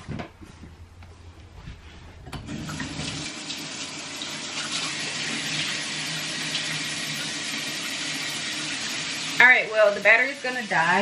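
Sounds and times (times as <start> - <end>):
water running: 2.4 - 11.0.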